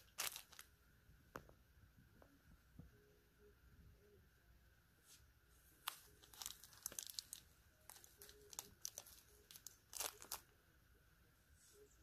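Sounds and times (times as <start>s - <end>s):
plastic bags crinkling: 0.0s - 0.7s, 5.8s - 10.5s.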